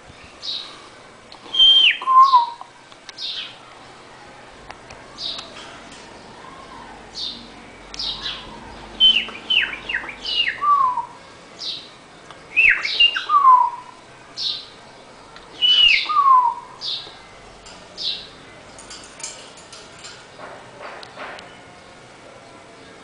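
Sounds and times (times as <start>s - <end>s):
bird chirping: 1.4s - 3.6s, 5.1s - 14.8s, 15.5s - 18.9s
bird whistling descending notes: 1.5s - 2.6s, 9.0s - 11.2s, 12.5s - 13.9s, 15.6s - 16.7s.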